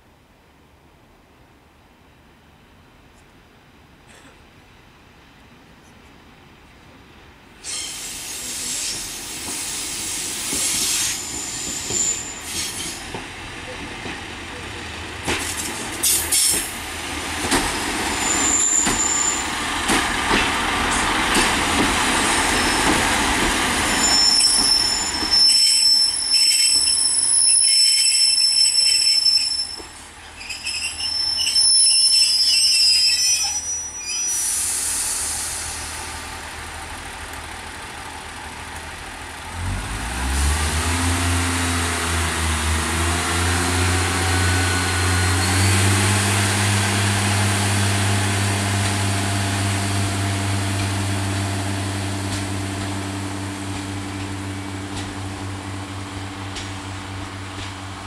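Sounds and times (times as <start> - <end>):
train rumbling: 6.4 - 58.0
high brake squeal: 7.6 - 13.1, 16.0 - 16.6, 18.2 - 19.6, 22.3 - 23.2, 23.8 - 36.0, 44.9 - 45.9
diesel engine throttling up: 35.7 - 57.6.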